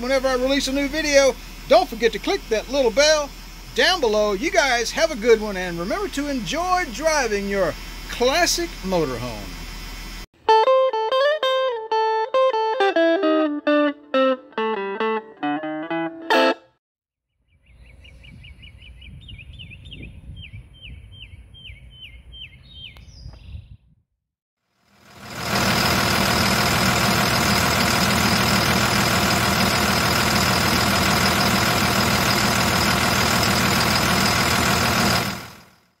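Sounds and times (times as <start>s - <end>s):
diesel engine running: 0.0s - 10.3s, 24.8s - 36.0s
bird chirping: 17.4s - 23.8s.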